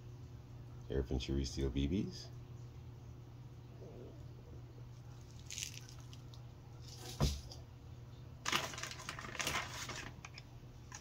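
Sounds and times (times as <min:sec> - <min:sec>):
low steady hum: 0:00.0 - 0:11.0
plastic bag crinkling: 0:05.2 - 0:07.2, 0:08.4 - 0:11.0.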